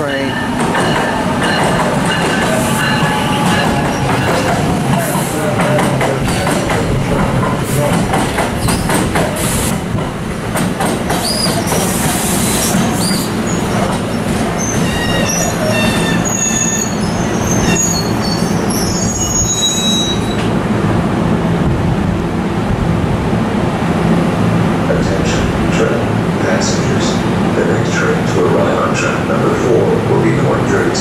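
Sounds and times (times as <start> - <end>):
train rumbling: 0.0 - 31.0
train wheels squealing: 11.2 - 20.5.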